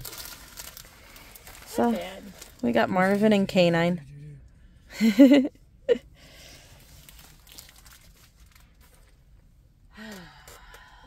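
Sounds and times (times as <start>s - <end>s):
packaging crinkling: 0.0s - 2.6s, 6.8s - 9.2s.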